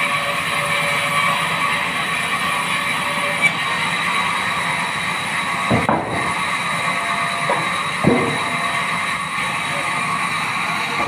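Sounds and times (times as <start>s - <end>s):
band saw whining: 0.0s - 11.0s
wooden planks knocking: 5.7s - 6.4s, 7.5s - 8.6s.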